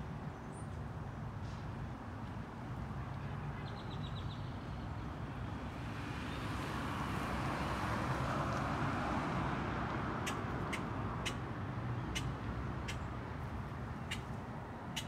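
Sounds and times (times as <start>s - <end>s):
vehicle passing: 5.7s - 15.0s.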